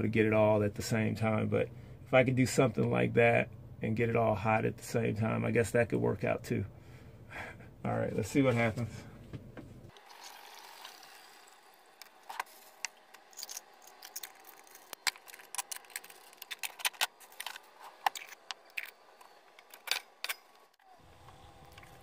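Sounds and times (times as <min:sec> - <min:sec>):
kitchen items clicking and rattling: 0:12.2 - 0:20.7.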